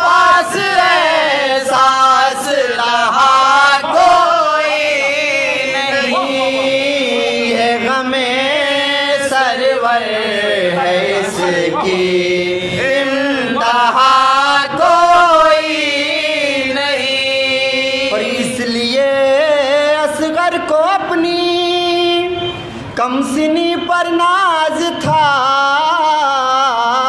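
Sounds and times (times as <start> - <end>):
voices chanting an elegy: 0.0 - 18.7.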